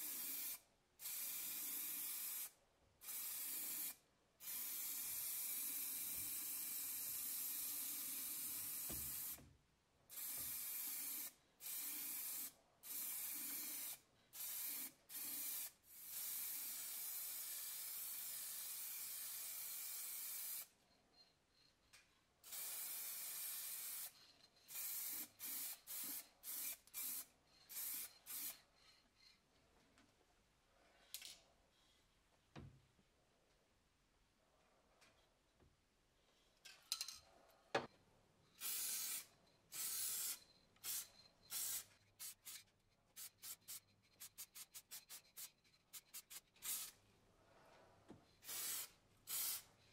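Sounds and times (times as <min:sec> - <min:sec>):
paint spray hissing: 0:24.7 - 0:28.6, 0:38.6 - 0:42.6, 0:43.2 - 0:46.9, 0:48.4 - 0:49.7.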